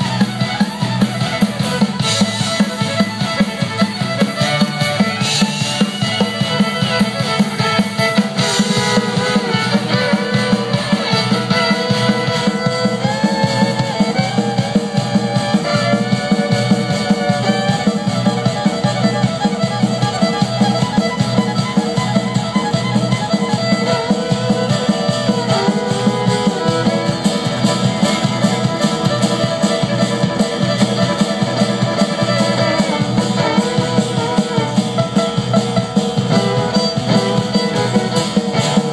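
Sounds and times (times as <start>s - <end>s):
fiddle-led dance music: 0.0s - 38.9s.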